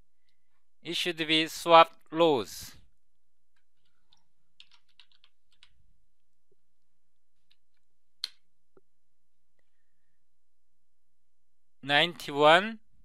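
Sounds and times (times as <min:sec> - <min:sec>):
faint keyboard typing: 0:03.5 - 0:05.8.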